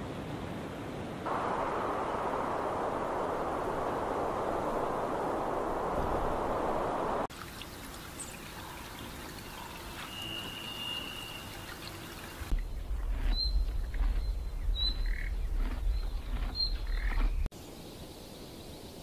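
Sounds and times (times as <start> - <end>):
hiss of flowing water: 0.9 - 12.6
high bird chirps: 9.5 - 17.4
high bird whistle: 10.0 - 11.7
deep low rumble: 12.5 - 17.5.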